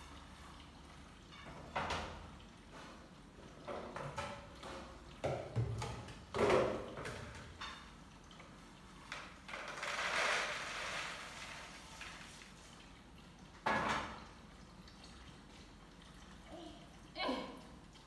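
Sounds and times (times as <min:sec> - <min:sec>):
kitchenware clattering on counter: 0:03.7 - 0:08.0, 0:13.6 - 0:14.2.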